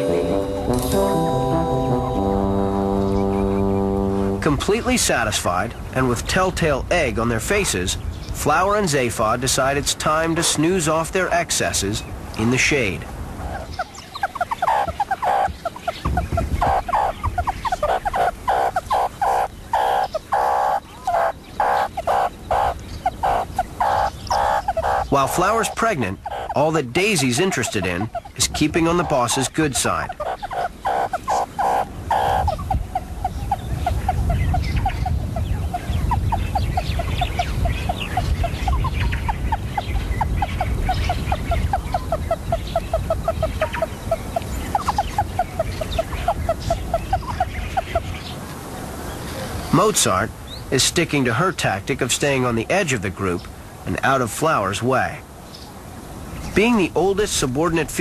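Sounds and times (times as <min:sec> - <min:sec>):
meerkats chirping and calling: 0:13.4 - 0:48.3.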